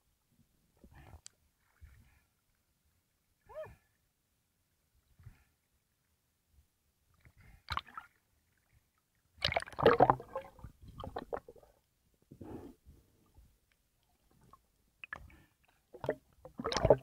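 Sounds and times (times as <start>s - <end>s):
water splashing and gurgling: 7.2s - 11.8s, 14.4s - 17.0s.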